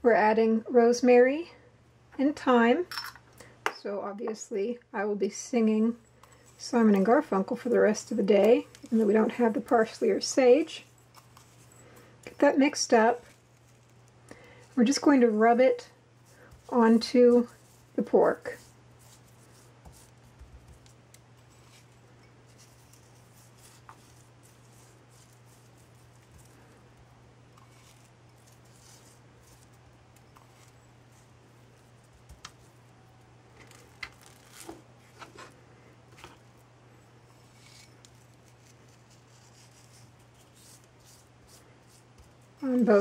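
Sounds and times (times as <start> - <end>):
hands rubbing seasoning into meat: 16.4 - 32.3.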